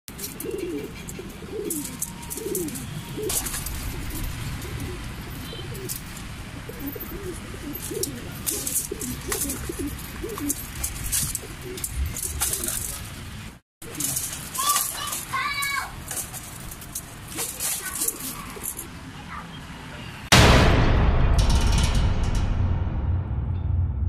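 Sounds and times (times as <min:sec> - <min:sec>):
pigeons cooing: 0:00.1 - 0:13.2, 0:13.8 - 0:15.2, 0:16.6 - 0:19.6.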